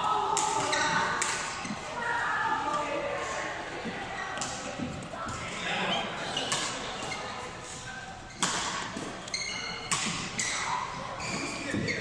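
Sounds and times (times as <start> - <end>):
racquets striking shuttlecock: 0.3 - 1.6, 6.4 - 7.2, 8.4 - 10.6
shoes squeaking on floor: 0.6 - 2.0, 3.8 - 12.0.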